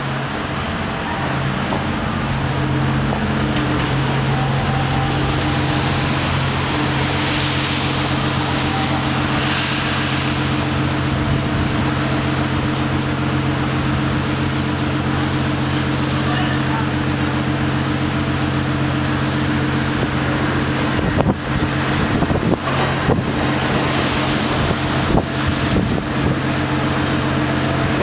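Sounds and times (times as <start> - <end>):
street traffic: 0.0 - 28.0
tram humming: 0.0 - 28.0
car passing with tyre noise: 2.2 - 10.6.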